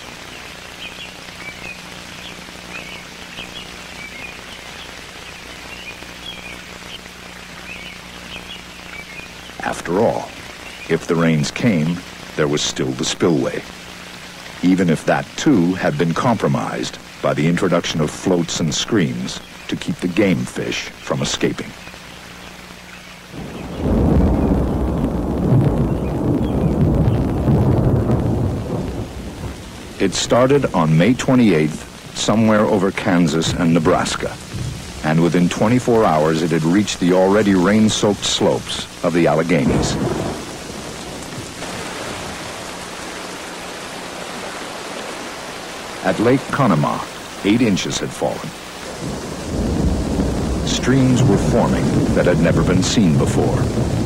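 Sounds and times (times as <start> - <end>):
birds chirping: 0.0 - 54.0
rain-like hiss: 0.0 - 54.0
rolling thunder: 23.4 - 30.7, 33.4 - 36.1, 39.4 - 42.8, 48.8 - 54.0.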